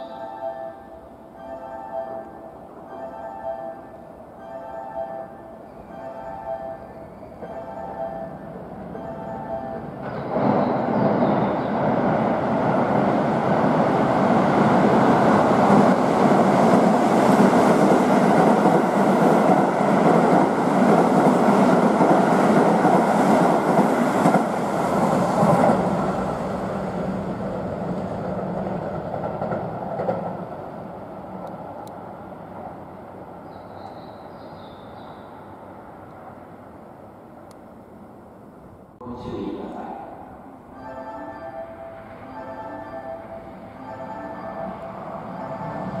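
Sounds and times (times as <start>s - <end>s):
train wheels rumbling on rail: 8.5s - 37.7s.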